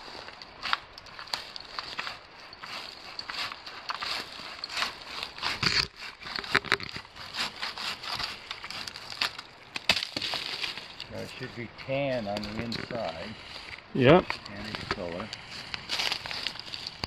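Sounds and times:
hand saw rasping through wood: 1.9s - 9.0s.

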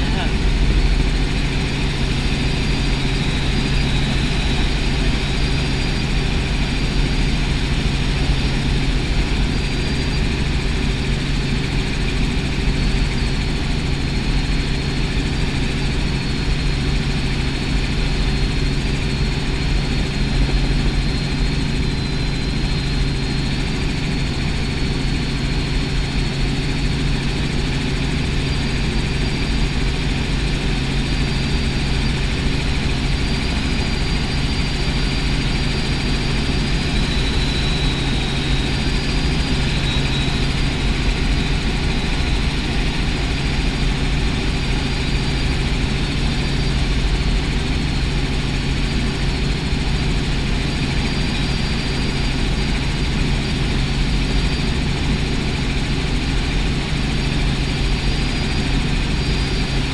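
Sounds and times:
helicopter engine and rotor drone: 0.0s - 59.9s.

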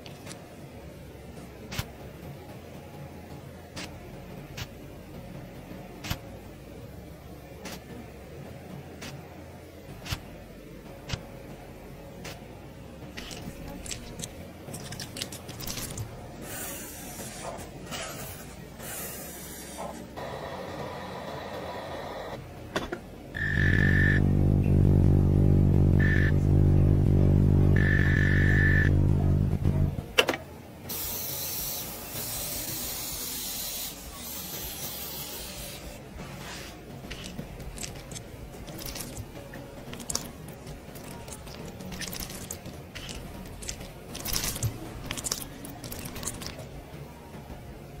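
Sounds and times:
brush swishing over skin: 36.3s - 39.2s, 40.9s - 46.6s
clay mask squeezed into bowl: 37.1s - 46.6s.

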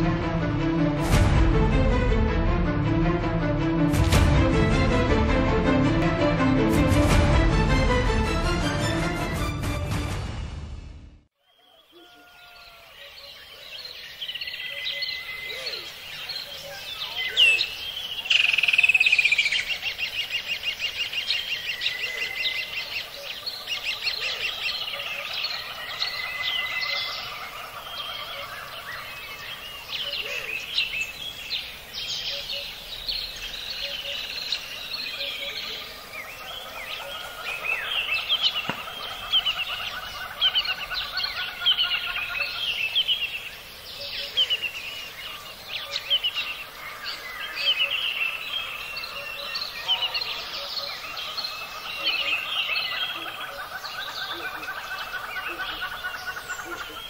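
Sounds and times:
birds chirping and trilling: 11.4s - 57.0s.

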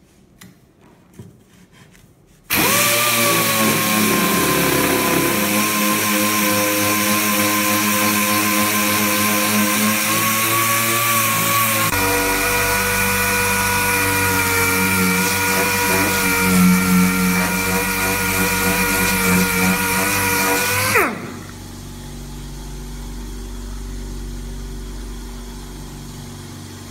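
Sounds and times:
air sander whining: 2.5s - 26.9s
sander spinning down: 2.5s - 26.9s
low steady hum: 21.2s - 26.9s.

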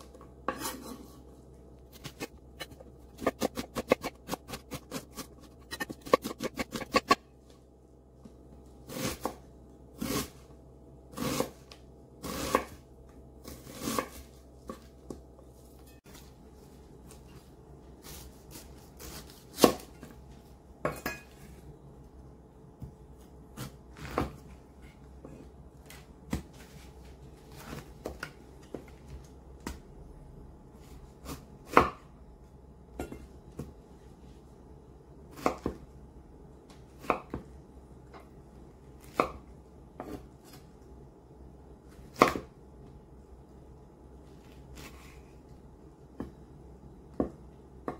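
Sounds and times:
knife chopping on wooden board: 2.0s - 7.2s, 18.5s - 20.0s, 42.1s - 42.5s
knife slicing pineapple: 18.0s - 20.0s.

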